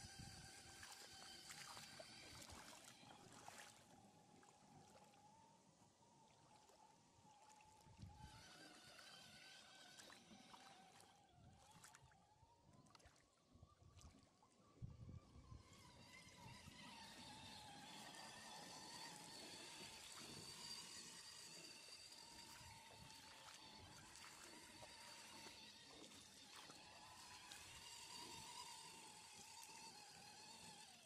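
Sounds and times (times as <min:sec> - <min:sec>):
electric motor whine: 0:00.0 - 0:04.0, 0:07.9 - 0:12.4, 0:14.8 - 0:31.0
water trickling and splashing: 0:00.0 - 0:05.4, 0:06.2 - 0:31.0.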